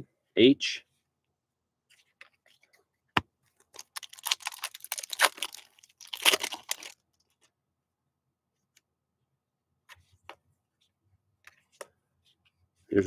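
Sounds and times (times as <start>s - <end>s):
foil wrapper crinkling and tearing: 3.8s - 7.0s.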